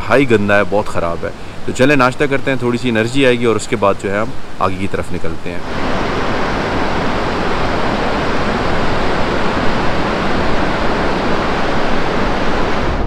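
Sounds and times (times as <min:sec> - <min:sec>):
river water rushing: 0:00.0 - 0:13.0.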